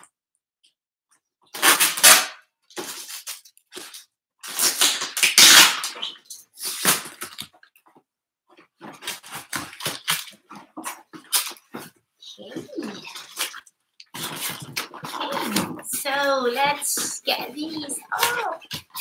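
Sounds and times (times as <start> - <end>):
packing tape ripping: 1.5 - 7.7, 8.8 - 11.9, 13.0 - 16.0.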